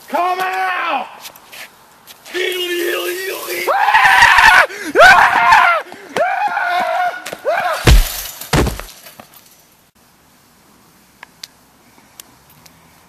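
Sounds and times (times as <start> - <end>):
person screaming: 3.6 - 8.0
loud crashes: 7.8 - 8.9.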